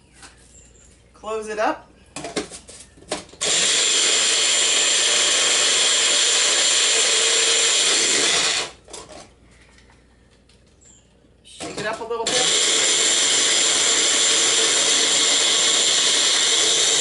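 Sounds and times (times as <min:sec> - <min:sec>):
blender whirring: 0:03.4 - 0:08.8, 0:12.2 - 0:17.0.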